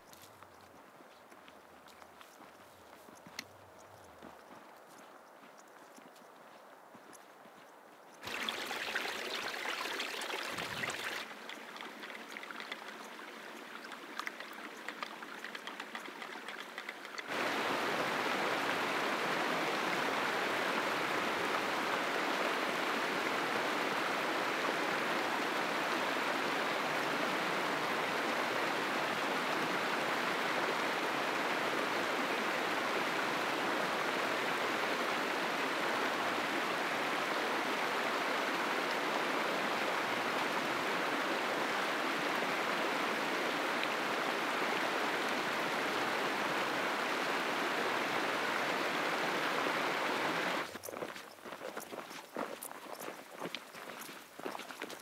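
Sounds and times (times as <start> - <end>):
stream running over rocks: 8.2 - 55.0
ticks and crackles: 10.5 - 17.3.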